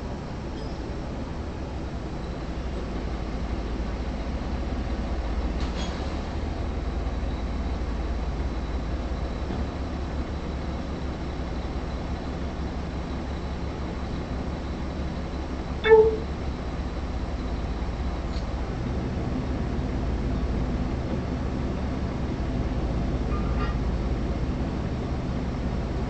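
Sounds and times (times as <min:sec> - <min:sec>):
faint high whine: 0:15.8 - 0:16.4.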